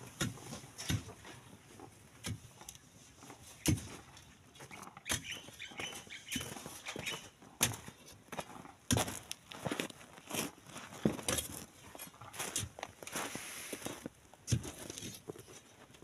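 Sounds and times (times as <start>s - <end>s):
digging tool striking gravel: 0.0s - 1.4s, 2.2s - 8.2s, 8.9s - 9.4s, 14.4s - 15.3s.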